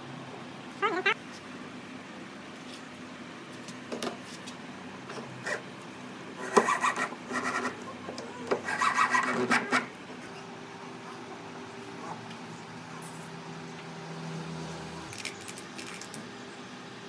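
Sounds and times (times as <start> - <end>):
hand tool scraping wood: 6.4 - 9.9.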